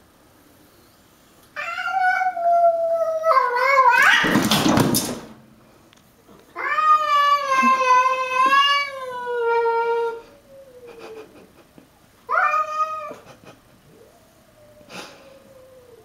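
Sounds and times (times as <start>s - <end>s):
cats yowling: 1.6s - 4.4s, 6.6s - 11.4s, 12.3s - 16.0s
cat harsh outburst: 1.6s - 4.5s.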